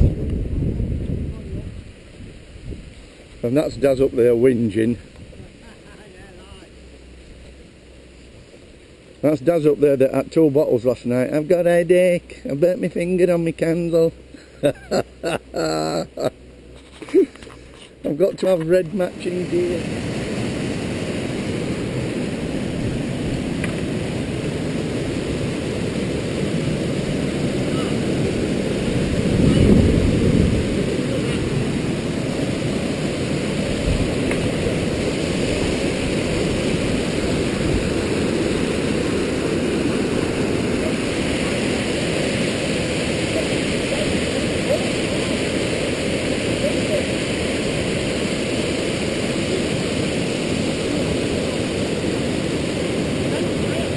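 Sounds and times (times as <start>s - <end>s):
mountain stream rushing over rocks: 15.6s - 53.9s.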